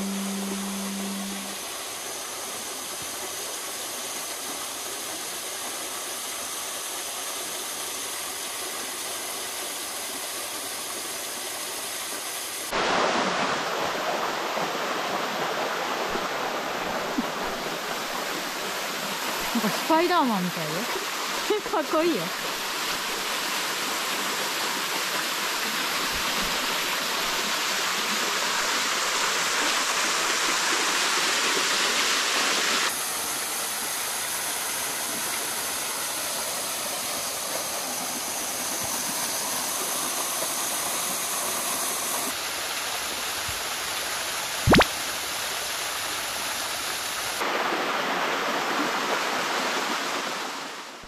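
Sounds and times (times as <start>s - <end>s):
waterfall roaring: 0.0s - 5.8s
sharp click: 44.7s - 44.9s.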